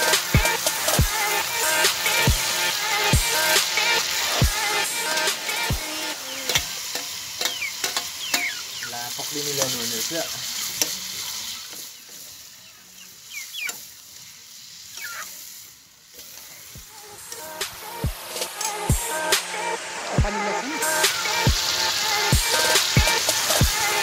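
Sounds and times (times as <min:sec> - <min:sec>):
meat sizzling in a wok: 0:00.0 - 0:24.0
metal ladle scraping a pan: 0:06.5 - 0:12.5.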